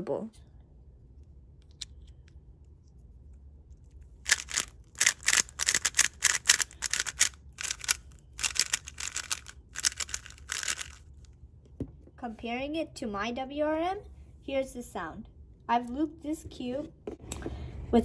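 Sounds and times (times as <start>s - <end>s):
speed cube plastic clicking: 4.3s - 11.0s.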